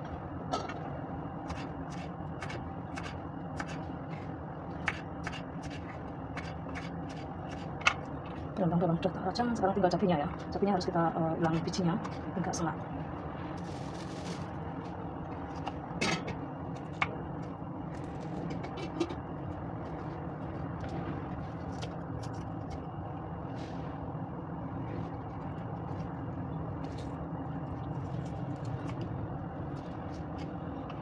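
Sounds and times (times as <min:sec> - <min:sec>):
low background hum: 0:00.0 - 0:31.0.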